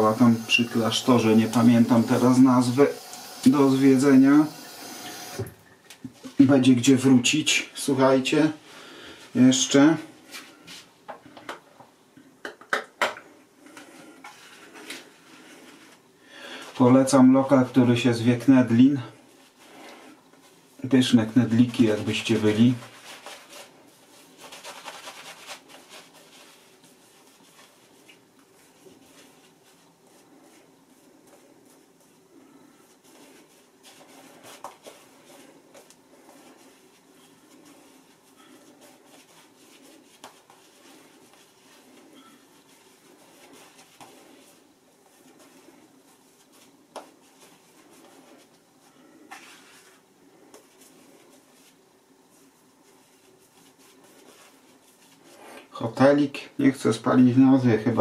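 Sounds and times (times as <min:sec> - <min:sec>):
shaving brush bristles rubbing: 0:00.0 - 0:05.4, 0:21.4 - 0:50.0.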